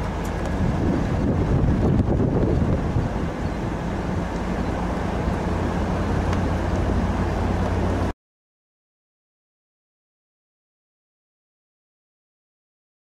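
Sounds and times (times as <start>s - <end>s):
truck engine hum: 0.0s - 8.1s
wind and road noise: 0.0s - 8.2s.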